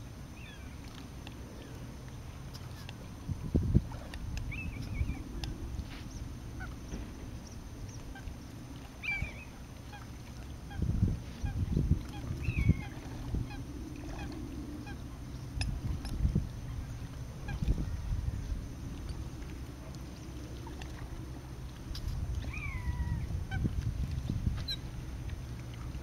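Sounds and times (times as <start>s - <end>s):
wind buffeting microphone: 2.7s - 9.6s, 10.3s - 26.0s
faint bird calls: 4.4s - 15.6s, 22.4s - 23.7s, 24.6s - 25.0s.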